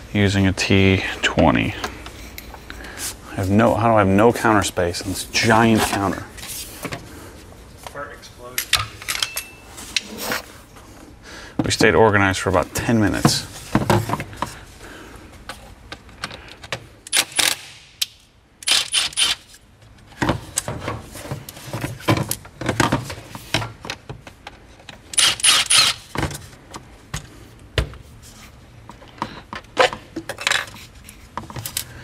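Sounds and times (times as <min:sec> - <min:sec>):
metal tools clinking and rattling: 0:08.6 - 0:10.0.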